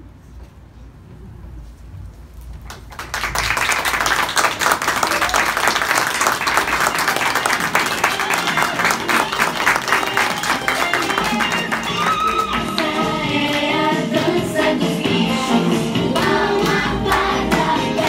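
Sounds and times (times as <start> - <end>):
audience applauding: 2.7 - 14.4.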